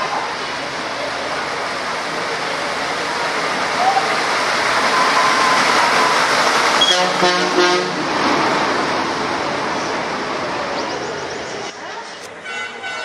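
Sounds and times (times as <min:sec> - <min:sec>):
truck driving past: 0:00.1 - 0:12.0
vehicle horn: 0:06.8 - 0:08.0, 0:12.4 - 0:13.0.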